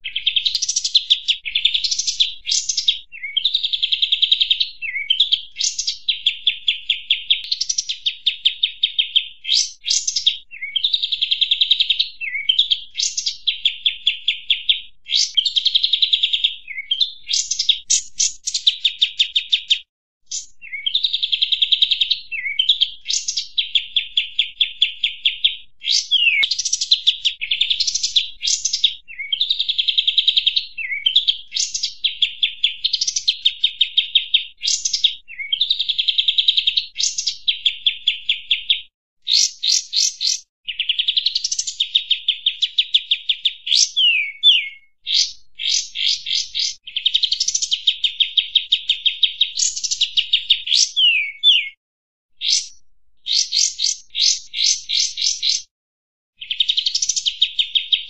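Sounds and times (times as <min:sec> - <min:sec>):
bird chattering trills: 0:25.9 - 0:29.3.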